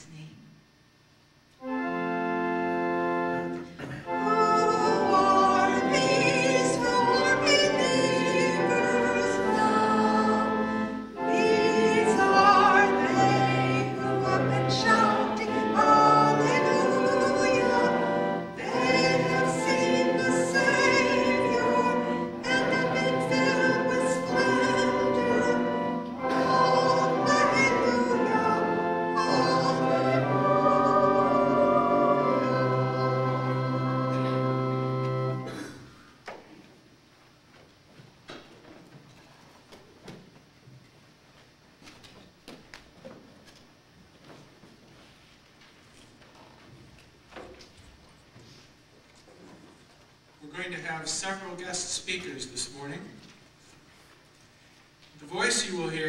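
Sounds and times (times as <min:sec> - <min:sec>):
organ chords: 0:01.4 - 0:36.4, 0:50.4 - 0:53.3.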